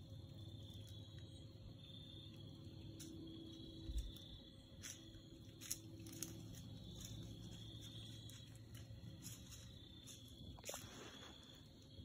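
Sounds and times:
faint insect hum: 0:00.0 - 0:12.0
soft ticks and rustles: 0:02.5 - 0:12.0.

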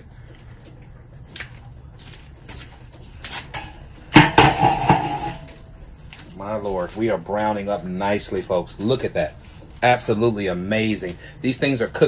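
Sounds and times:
metal lid clanking and ringing: 0:04.2 - 0:05.6.

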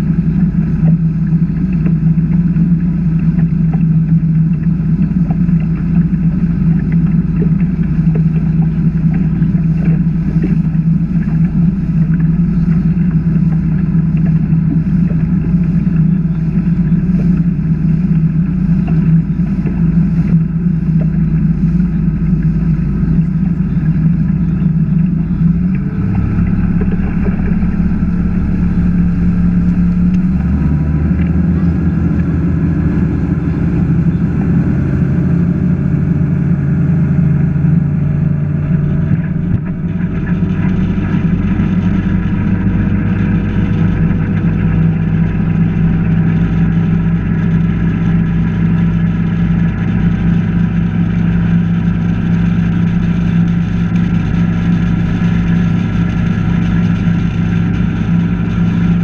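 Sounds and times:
boat engine running: 0:00.0 - 0:59.0
wind and water rushing: 0:00.0 - 0:59.0.

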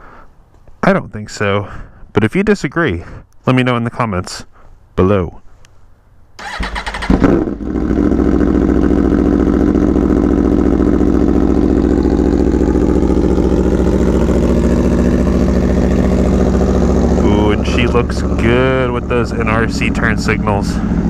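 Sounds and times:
motorcycle engine idling: 0:06.4 - 0:21.0.

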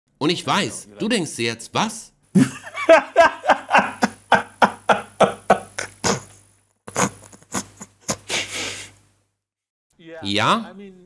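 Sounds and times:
man laughing: 0:02.4 - 0:06.4.

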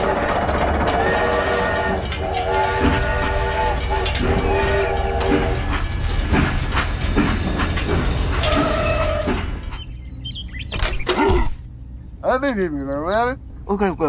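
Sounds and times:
electronic train whistle tone: 0:00.0 - 0:05.6
low motor hum: 0:00.0 - 0:14.0.

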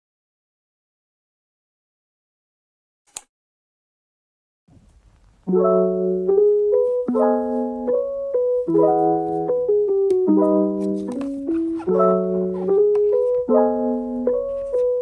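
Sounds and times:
mellow piano music: 0:05.4 - 0:15.0.

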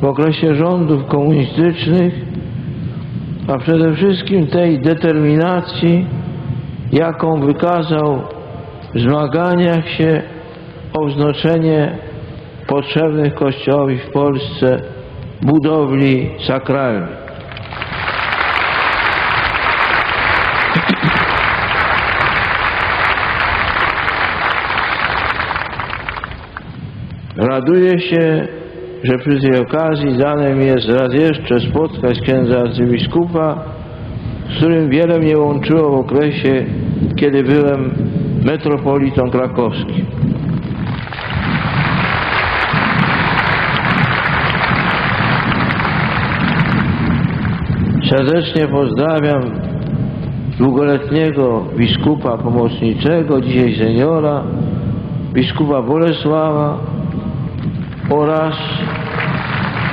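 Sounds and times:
large crowd applauding: 0:17.3 - 0:26.7, 0:40.8 - 0:48.0, 0:57.8 - 0:59.9.

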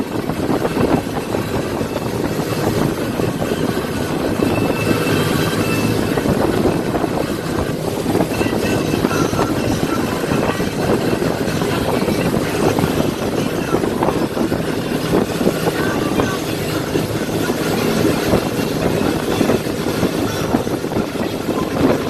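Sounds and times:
churning water: 0:00.0 - 0:22.0
motorboat engine running: 0:00.0 - 0:22.0
wind rushing: 0:00.0 - 0:22.0.

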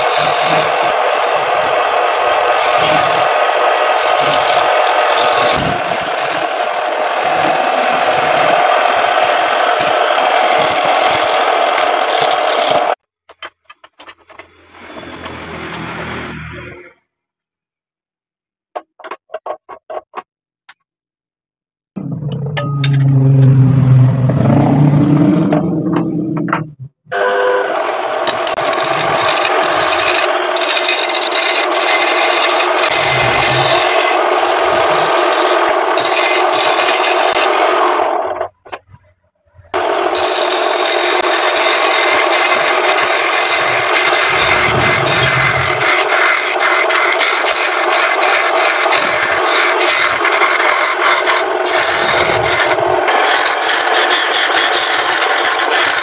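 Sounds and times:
lathe tool scraping wood: 0:00.0 - 0:13.0, 0:14.3 - 0:17.0, 0:27.1 - 0:38.6, 0:39.7 - 0:56.0
sandpaper rasping on spinning wood: 0:00.0 - 0:13.0, 0:28.3 - 0:37.6, 0:39.8 - 0:56.0
low hum: 0:22.0 - 0:30.7.

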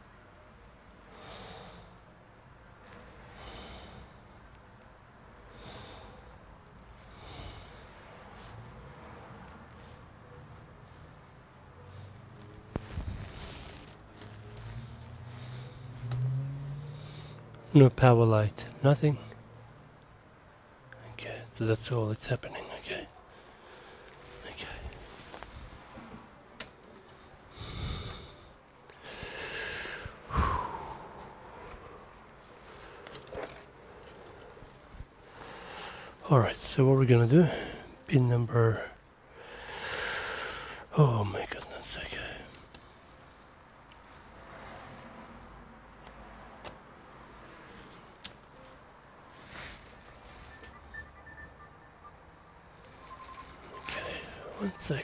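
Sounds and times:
person breathing through nose: 0:27.5 - 0:33.2, 0:39.4 - 0:40.9
man sighing: 0:29.2 - 0:31.4.

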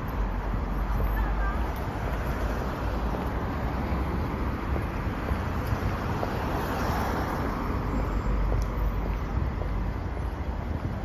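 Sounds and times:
cars driving past: 0:00.0 - 0:11.0.

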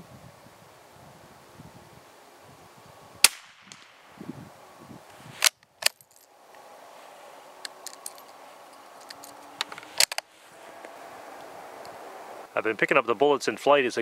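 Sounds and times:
rifle shot: 0:03.2 - 0:04.0.

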